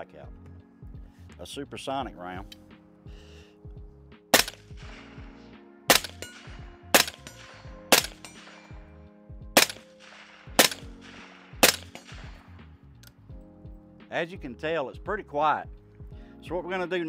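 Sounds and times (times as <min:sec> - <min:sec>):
suppressed rifle shots with echo: 0:04.3 - 0:08.9, 0:09.5 - 0:12.5.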